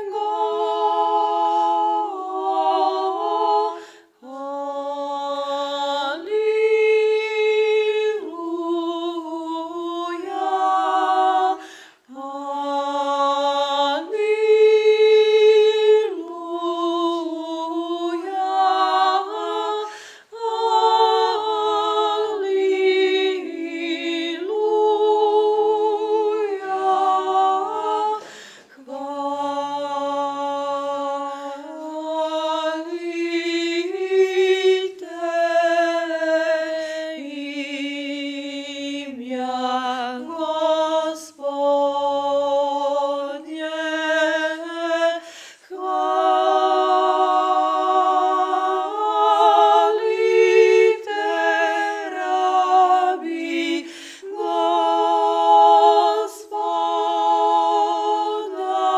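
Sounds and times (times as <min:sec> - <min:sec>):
choir singing in harmony: 0:00.0 - 0:58.9.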